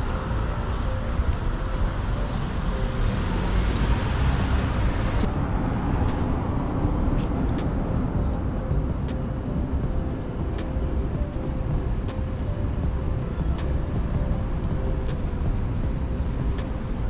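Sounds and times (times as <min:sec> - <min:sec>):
small car driving past: 0:00.0 - 0:08.2
low traffic rumble: 0:00.0 - 0:17.0.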